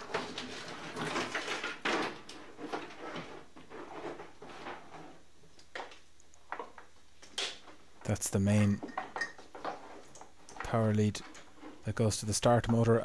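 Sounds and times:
wires rustling and scraping: 0:00.0 - 0:13.0.

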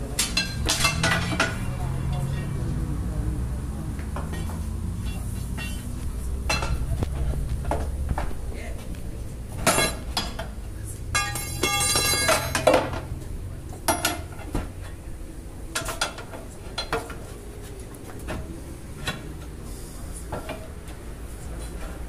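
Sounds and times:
ringing metal clanks: 0:00.1 - 0:02.6, 0:04.3 - 0:07.0, 0:09.6 - 0:13.2
metallic screech: 0:05.0 - 0:06.0.

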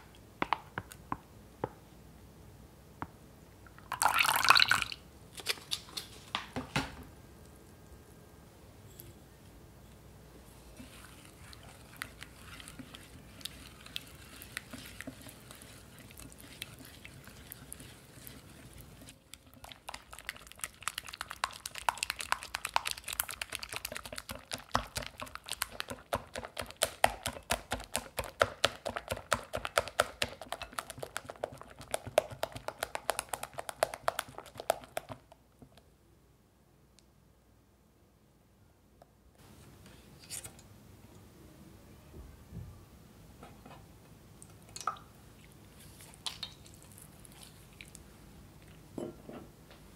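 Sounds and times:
whisk beating in glass bowl: 0:10.8 - 0:35.2.

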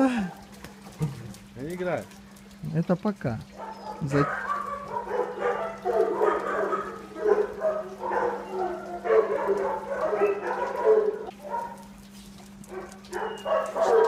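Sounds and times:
faint steady hum: 0:00.0 - 0:14.0
dogs growling and yapping: 0:03.4 - 0:14.0.

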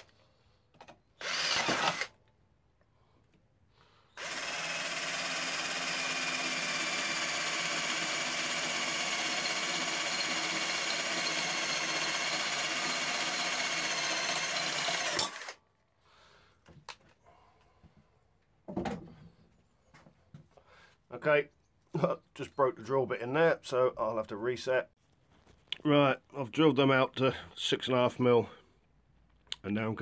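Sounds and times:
cordless drill running: 0:01.2 - 0:02.2, 0:04.2 - 0:15.6.

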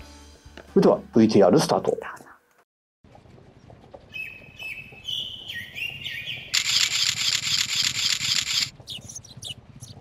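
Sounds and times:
outdoor ambience: 0:01.9 - 0:10.0
bird chirps: 0:04.1 - 0:10.0
camera shutter burst: 0:06.6 - 0:08.7.

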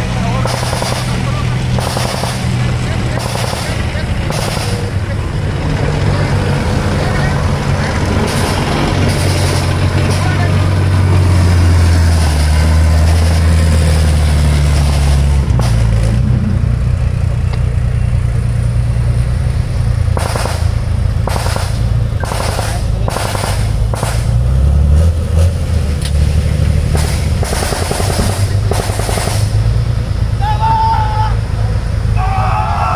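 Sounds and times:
diesel engine droning: 0:00.0 - 0:32.9
rattling gunfire bursts: 0:00.3 - 0:05.0, 0:08.2 - 0:10.5, 0:20.1 - 0:24.5, 0:26.8 - 0:29.7.

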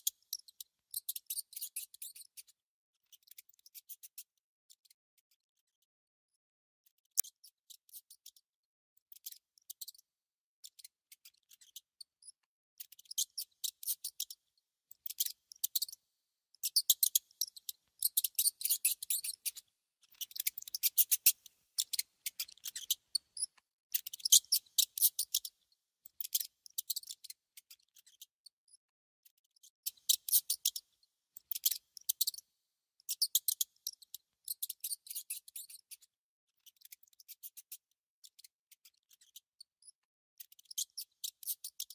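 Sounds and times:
mouse gnawing food: 0:16.7 - 0:19.5.

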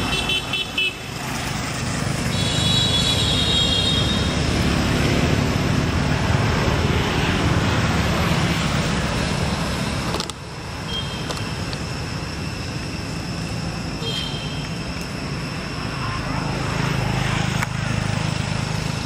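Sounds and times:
vehicle passing close by: 0:04.0 - 0:10.0.

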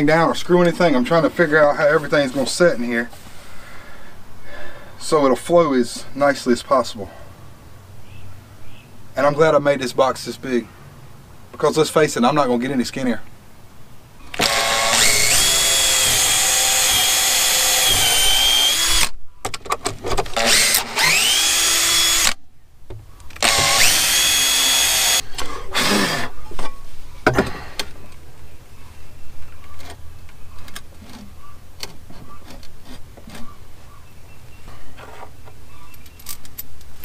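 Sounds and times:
drill whining into wood: 0:14.3 - 0:19.1, 0:20.3 - 0:22.4, 0:23.4 - 0:25.2, 0:25.8 - 0:26.3
knocks and clunks on wooden boards: 0:26.6 - 0:27.8.

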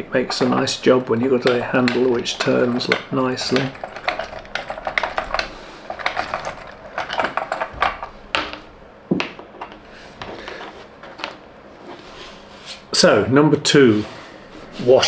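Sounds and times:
wooden parts clicking and knocking: 0:00.0 - 0:11.4.

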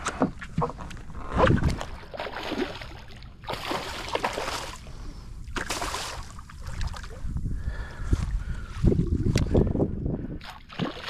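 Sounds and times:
wind on microphone: 0:00.0 - 0:02.1, 0:06.3 - 0:11.0
fish thrashing and splashing: 0:00.2 - 0:07.3, 0:10.4 - 0:11.0.

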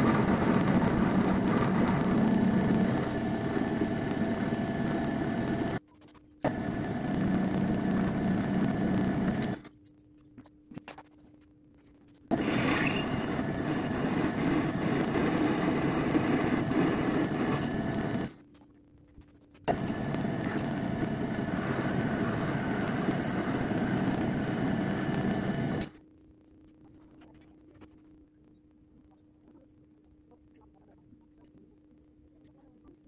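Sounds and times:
milling machine cutting metal: 0:00.0 - 0:05.8, 0:12.3 - 0:18.3.

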